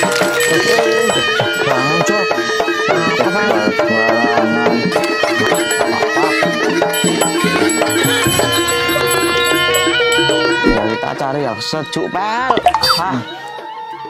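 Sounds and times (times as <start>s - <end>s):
bending pitched melody: 12.5s - 13.2s.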